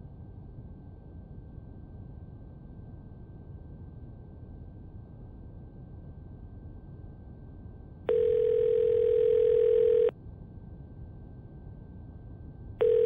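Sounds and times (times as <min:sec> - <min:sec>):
telephone ringback tone: 0:08.1 - 0:10.1, 0:12.8 - 0:13.0.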